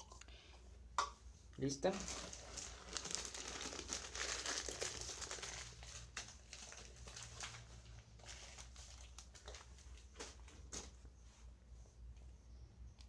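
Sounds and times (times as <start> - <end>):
plastic bag crinkling: 1.8 - 11.0.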